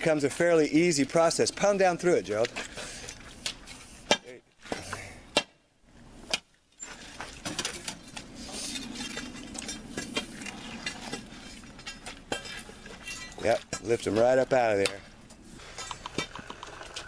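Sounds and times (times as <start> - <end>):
pry bar striking concrete: 4.1 - 5.6.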